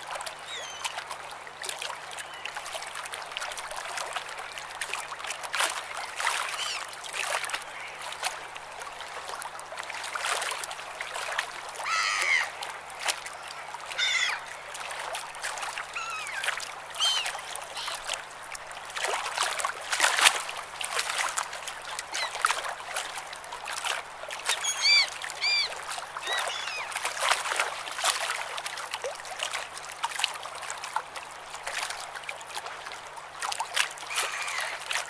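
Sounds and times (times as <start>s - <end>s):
waves splashing: 0.0s - 35.0s
seagulls calling: 11.8s - 12.6s, 13.9s - 14.5s, 15.9s - 18.1s, 24.6s - 27.0s, 34.1s - 34.8s.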